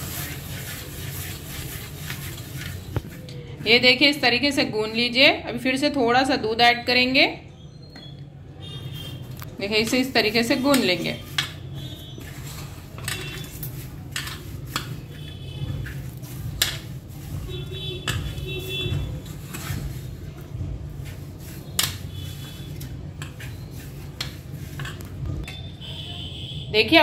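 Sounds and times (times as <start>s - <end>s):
dough knocking against metal pan: 16.5s - 19.2s.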